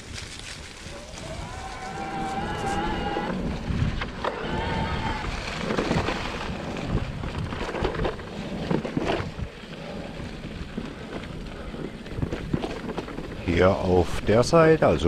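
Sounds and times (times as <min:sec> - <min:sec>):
wind on microphone: 0:00.0 - 0:14.5
bike tyre noise: 0:00.0 - 0:15.0
bike clunking and rattling: 0:05.5 - 0:13.7.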